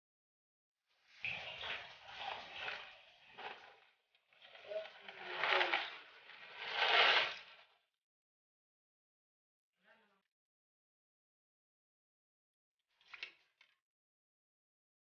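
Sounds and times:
plastic bowl scraping: 1.3 - 7.6.

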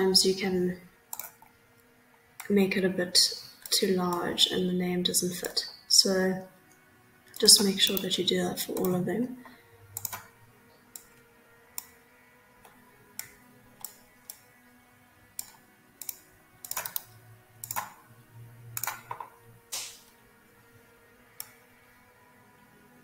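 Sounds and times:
faint steady background tone: 0.0 - 23.0
mouse and keyboard clicks: 1.1 - 1.5, 10.0 - 10.3, 15.4 - 18.0, 18.8 - 20.0.

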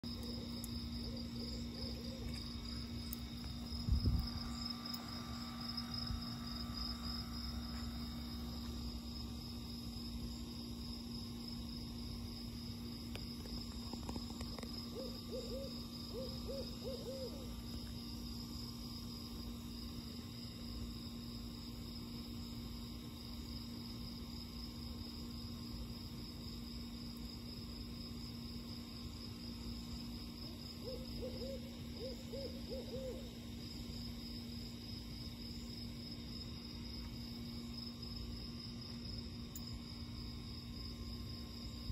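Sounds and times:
insect chirping: 0.0 - 41.9
owl hooting: 1.1 - 2.4, 14.9 - 17.6, 30.8 - 33.4.

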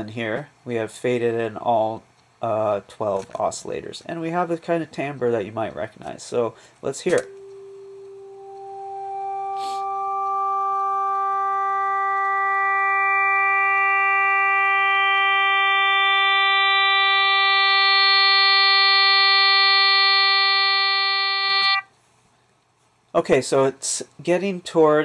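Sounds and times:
synthesized brassy tone: 8.2 - 21.8.

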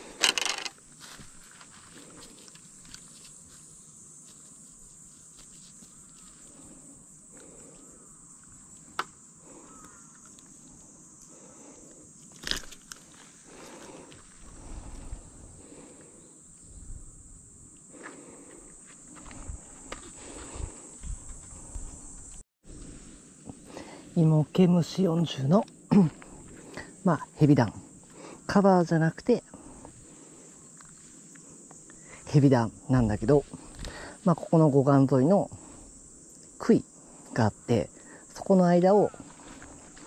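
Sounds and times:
rustling and handling noises: 0.0 - 6.7
insects chirring: 0.0 - 40.0.

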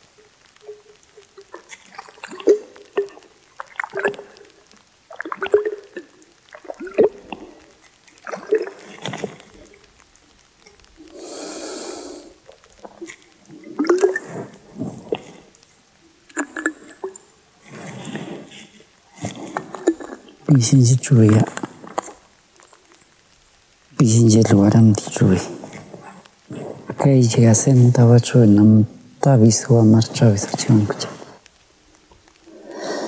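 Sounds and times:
long hissing blow: 11.0 - 12.4, 32.4 - 33.0.

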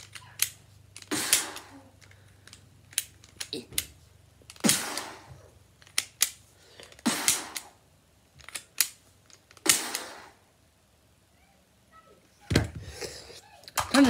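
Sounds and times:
toy gun clicks: 5.8 - 6.4.

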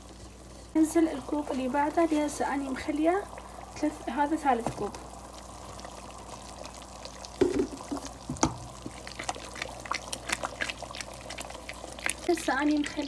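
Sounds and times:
butter bubbling and crackling: 0.0 - 13.0
knocks against metal pot: 7.4 - 8.6.

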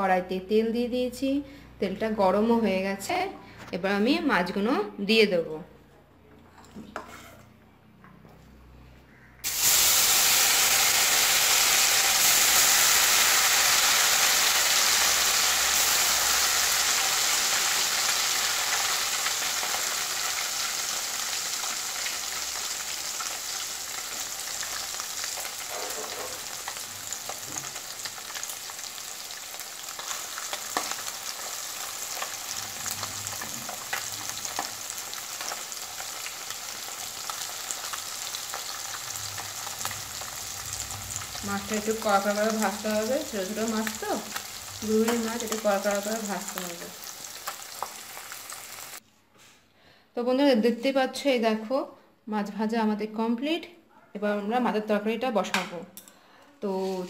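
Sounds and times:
deep-frying sizzle: 9.4 - 49.0.

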